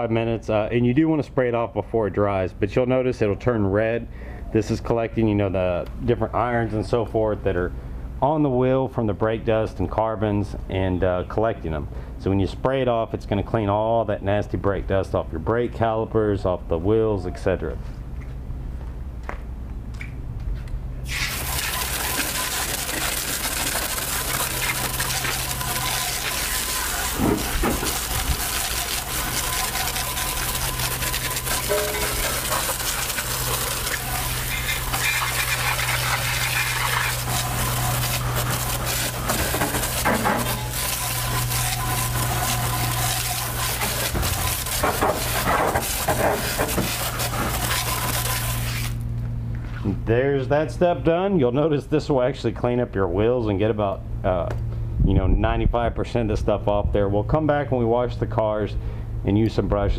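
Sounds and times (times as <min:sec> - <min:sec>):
steady low hum: 0:17.8 - 0:50.8
hose water spray hissing: 0:21.0 - 0:49.0.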